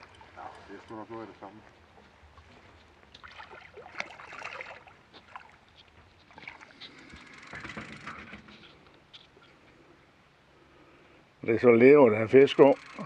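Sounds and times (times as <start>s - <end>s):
water splashing: 3.1s - 6.9s
knocks and rustling: 7.5s - 9.3s.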